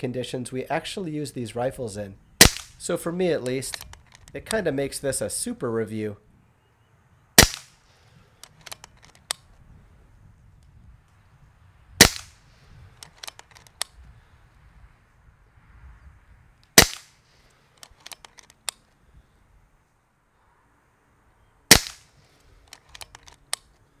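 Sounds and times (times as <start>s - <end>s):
air rifle shots: 2.4s - 2.8s, 7.4s - 7.8s, 12.0s - 12.4s, 16.8s - 17.2s, 21.7s - 22.2s.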